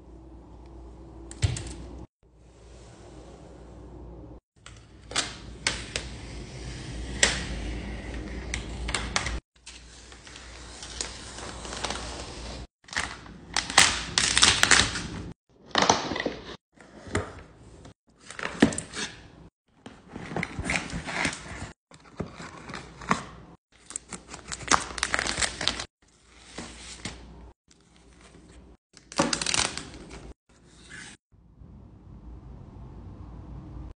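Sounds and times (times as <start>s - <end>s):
paper and card rustling: 20.1s - 31.2s.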